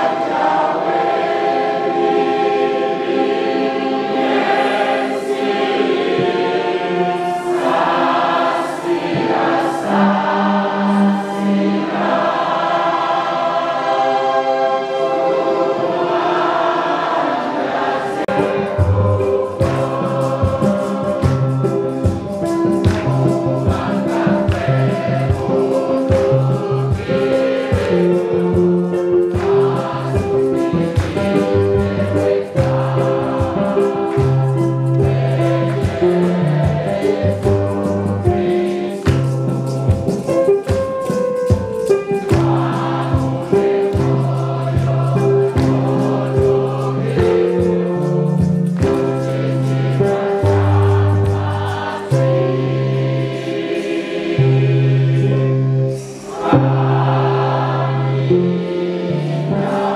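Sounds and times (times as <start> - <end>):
choir and congregation singing a hymn: 0.0 - 59.9
hand-clapping: 21.0 - 35.2, 39.0 - 46.2, 47.2 - 52.1.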